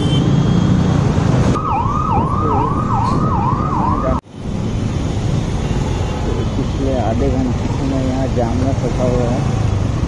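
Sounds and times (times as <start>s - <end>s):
siren sweeping up and down: 1.5s - 4.2s.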